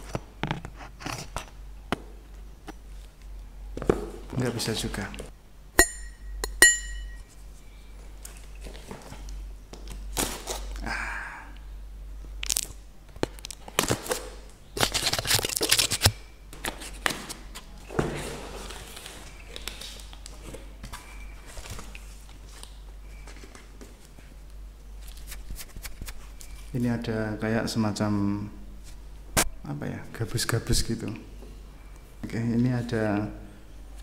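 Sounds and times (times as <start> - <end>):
sharp ringing clicks: 5.8 - 7.3
cardboard tearing and scraping: 14.8 - 17.3.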